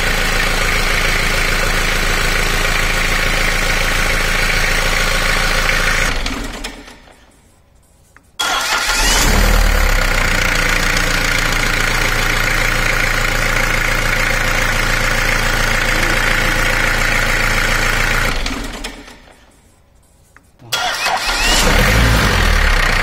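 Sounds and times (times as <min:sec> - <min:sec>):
starter motor cranking engine: 0:08.4 - 0:10.8, 0:20.7 - 0:23.0.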